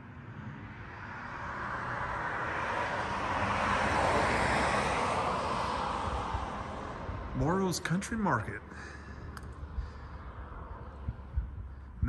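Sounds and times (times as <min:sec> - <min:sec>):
car driving past: 0:00.2 - 0:07.4.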